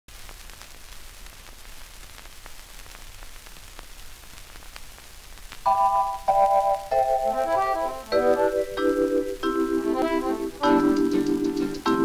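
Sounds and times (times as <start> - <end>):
record surface hiss: 0.1 - 12.0
record clicks and pops: 0.2 - 5.8.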